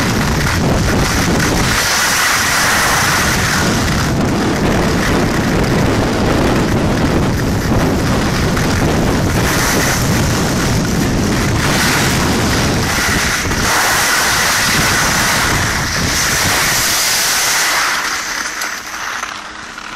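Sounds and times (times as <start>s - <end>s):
skis hissing on snow: 0.0s - 5.2s, 8.3s - 19.6s
wind buffeting microphone: 0.0s - 18.4s.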